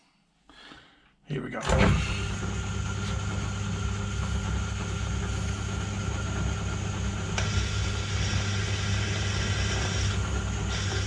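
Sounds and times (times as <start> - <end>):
lathe humming: 1.7 - 11.0
drill cutting into steel: 7.4 - 11.0.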